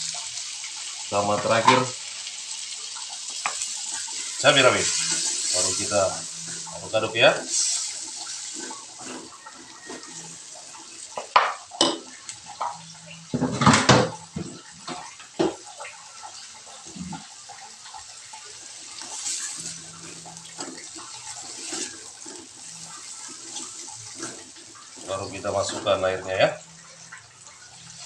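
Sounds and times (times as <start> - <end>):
food sizzling in a wok: 0.0 - 28.0
spatula scraping a pan: 3.4 - 15.1, 18.9 - 26.2.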